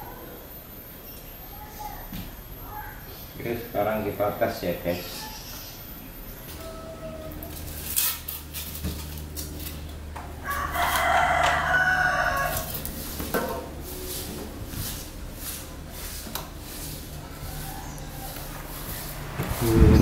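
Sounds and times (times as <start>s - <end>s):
fan humming: 0.0s - 20.0s
rooster crowing: 10.3s - 13.0s, 17.2s - 19.1s.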